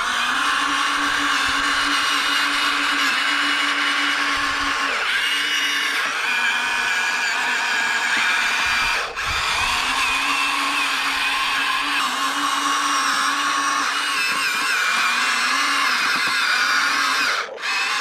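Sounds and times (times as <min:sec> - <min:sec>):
electric motors whining: 0:00.0 - 0:18.0.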